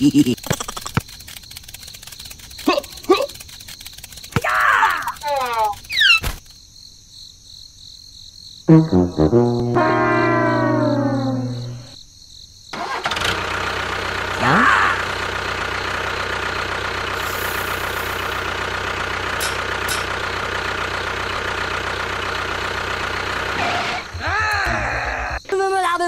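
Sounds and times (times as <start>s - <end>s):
tractor engine running: 0.0s - 6.2s, 12.8s - 24.2s
sharp clicks: 0.2s - 6.4s.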